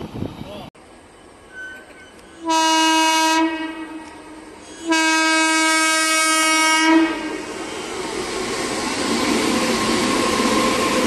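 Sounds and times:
locomotive horn blasts: 0:01.6 - 0:07.3.

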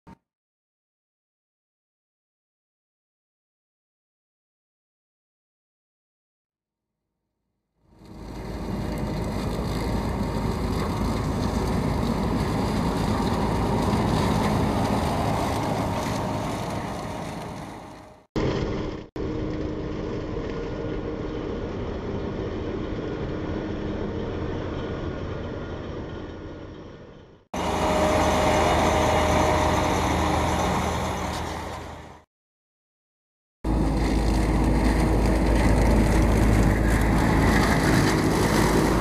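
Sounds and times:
dense mechanical noise: 0:07.9 - 0:32.2, 0:33.7 - 0:39.0
harvester engine hum: 0:07.9 - 0:32.2, 0:33.7 - 0:39.0.

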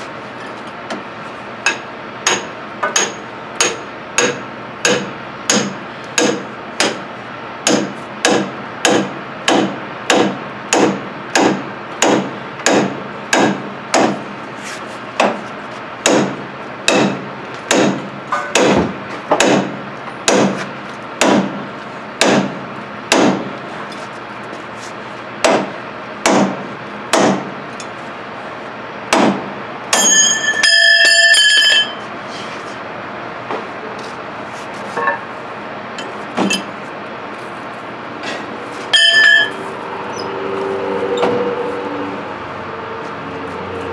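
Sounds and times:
hammer striking steel: 0:01.6 - 0:14.2, 0:16.0 - 0:23.5, 0:25.4 - 0:28.0, 0:29.1 - 0:32.1, 0:38.2 - 0:39.6
short high ringing tone: 0:30.0 - 0:32.1, 0:38.9 - 0:39.6.

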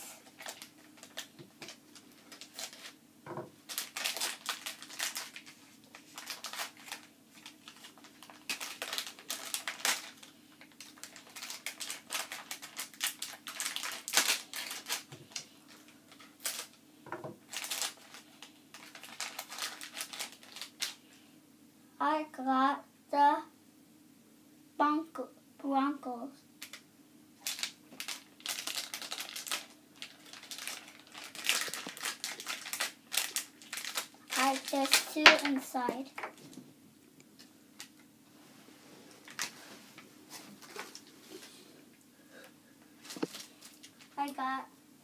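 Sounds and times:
foil packet crinkling: 0:00.0 - 0:03.0, 0:03.6 - 0:16.8, 0:17.4 - 0:21.0, 0:27.4 - 0:36.5, 0:39.2 - 0:39.6, 0:43.0 - 0:44.5.

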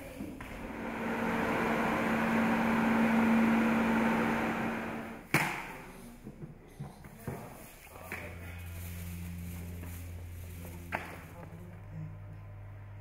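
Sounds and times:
wind machine fan rushing air: 0:00.4 - 0:05.2.

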